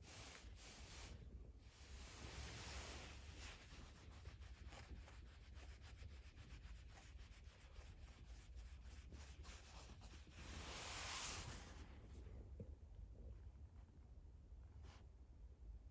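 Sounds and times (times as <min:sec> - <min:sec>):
fingers scratching cat fur: 0:00.1 - 0:11.6.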